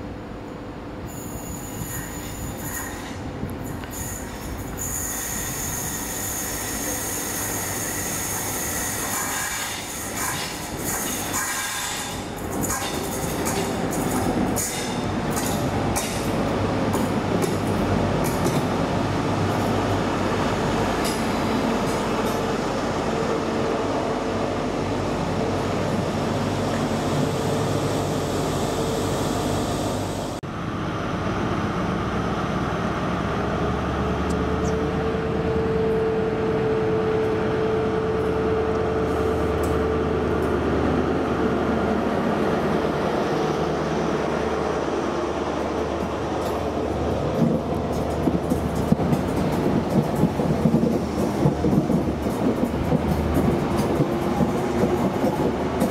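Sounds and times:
train rail and wheel noise: 0.0 - 55.9
diesel engine drone: 26.2 - 42.3.

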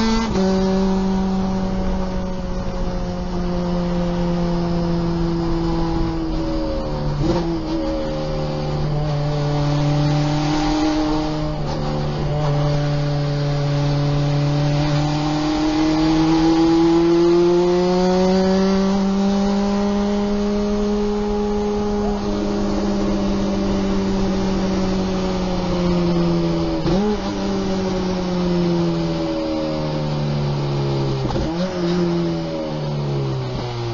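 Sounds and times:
engine downshifting: 0.0 - 33.9
race car engine accelerating: 0.0 - 33.9.

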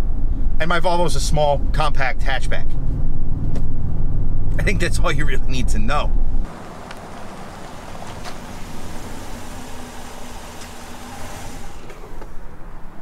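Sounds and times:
in-cab road rumble: 0.0 - 13.0
steady outdoor hiss: 4.6 - 13.0.

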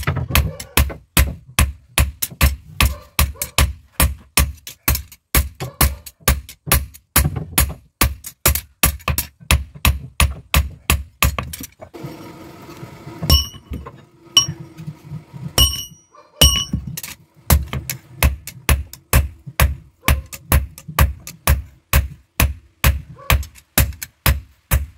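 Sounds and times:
hammer striking hot steel on anvil: 13.2 - 14.8, 15.6 - 24.9.

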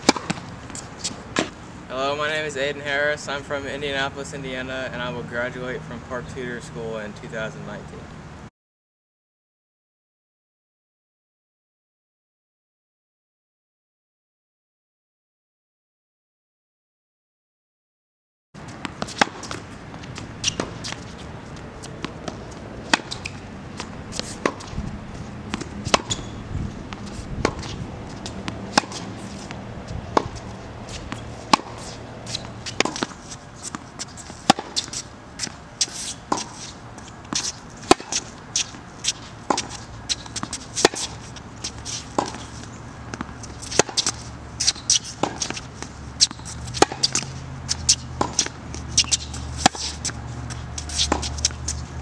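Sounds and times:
racket hitting tennis ball: 0.0 - 1.6, 18.6 - 52.0
shoe scuffs: 18.6 - 52.0
ball bounces: 39.5 - 41.1.

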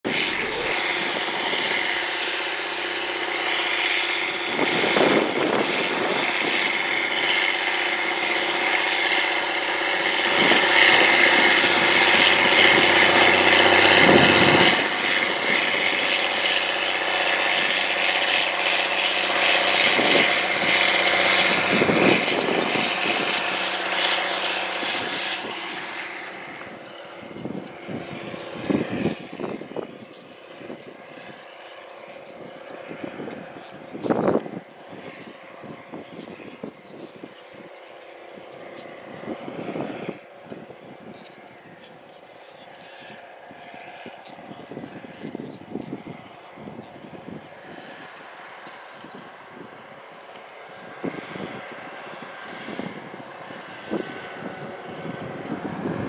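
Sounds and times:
tractor diesel engine droning: 0.0 - 56.0.

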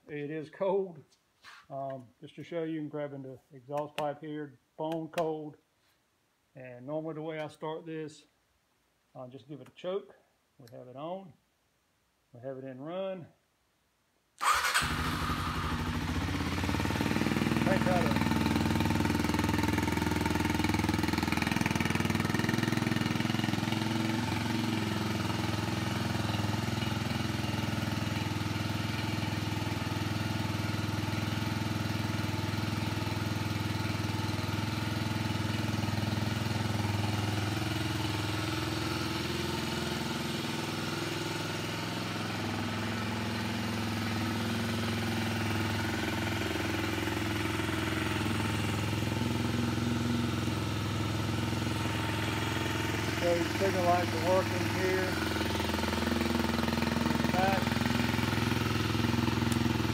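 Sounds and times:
motorcycle engine idling: 14.4 - 59.9.

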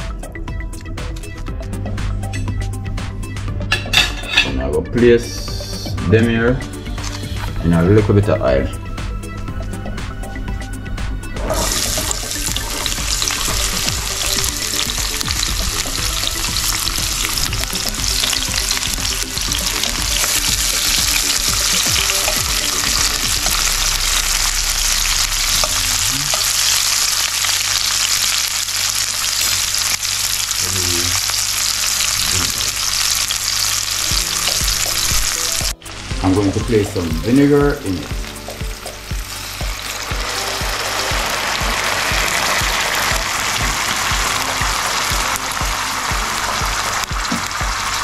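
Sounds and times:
vegetables sizzling in hot oil: 11.4 - 48.0.

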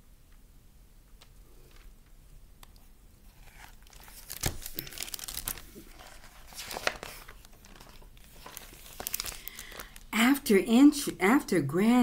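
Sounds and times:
paper pages rustling: 1.2 - 2.0, 3.2 - 10.1.

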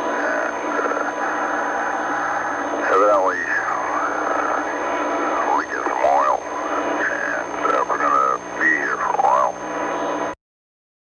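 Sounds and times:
man talking over radio: 0.0 - 2.0, 2.8 - 9.6
steady hum: 0.0 - 10.4.

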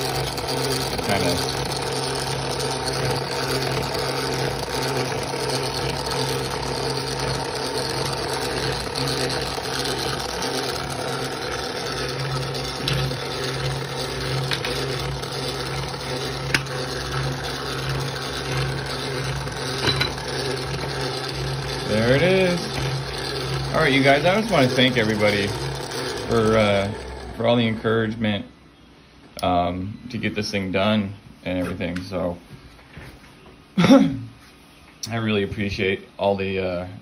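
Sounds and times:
model engine mechanical hum: 0.0 - 28.2.

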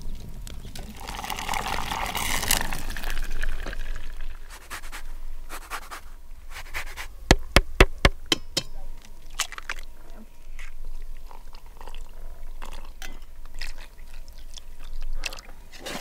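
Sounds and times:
liquid pouring from metal pot: 0.9 - 4.0
zest grating on grater: 4.5 - 8.1.

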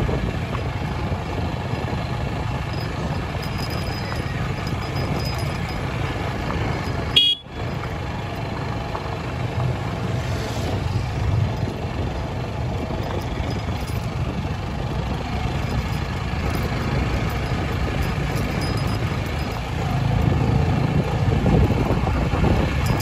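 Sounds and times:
vehicle engine rumbling: 0.0 - 23.0
short horn toot: 7.2 - 7.5.

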